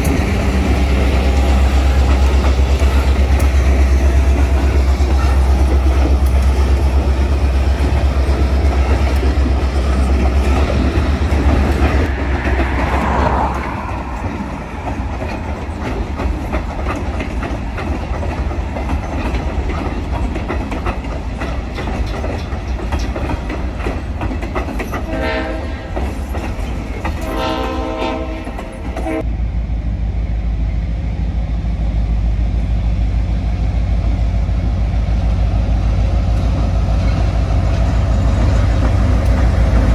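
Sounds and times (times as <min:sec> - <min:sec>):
train wheels clicking over rails: 0:00.0 - 0:29.2
diesel locomotive engine rumble: 0:00.0 - 0:39.9
locomotive horn blasts: 0:25.0 - 0:26.1, 0:27.1 - 0:29.2.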